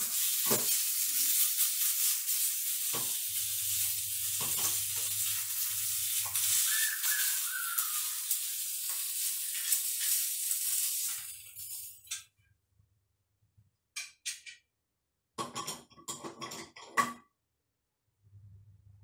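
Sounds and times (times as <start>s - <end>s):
chicken sizzling in a pan: 0.0s - 12.3s.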